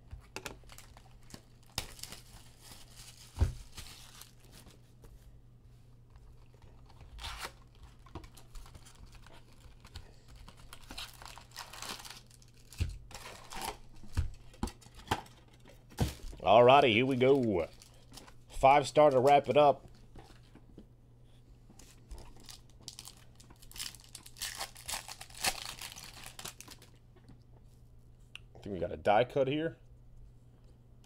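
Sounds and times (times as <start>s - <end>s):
wrappers crinkling: 0.6s - 4.8s, 6.4s - 15.4s, 16.1s - 19.7s, 21.8s - 27.0s
cardboard tearing: 7.0s - 9.5s, 22.9s - 26.7s.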